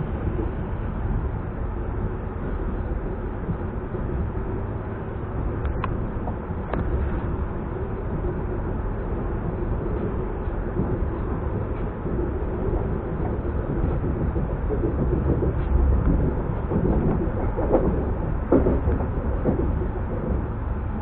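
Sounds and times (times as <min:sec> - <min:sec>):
train wheels on rails: 0:00.0 - 0:21.0.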